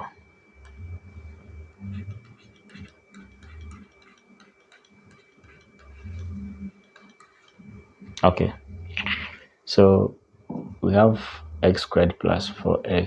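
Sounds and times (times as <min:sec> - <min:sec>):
low hum: 0:00.0 - 0:13.0
stylus tapping on pen tablet: 0:01.9 - 0:07.6.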